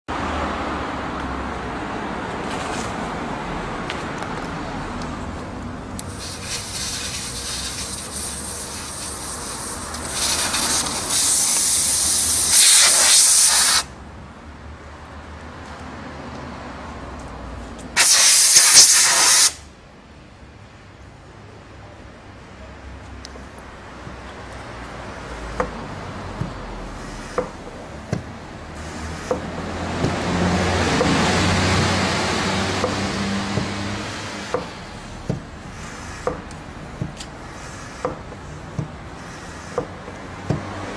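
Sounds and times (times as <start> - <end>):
air hissing from tyre valve: 6.0 - 13.9, 18.0 - 19.7, 26.9 - 27.7, 28.8 - 29.4, 32.8 - 36.6, 37.2 - 40.2.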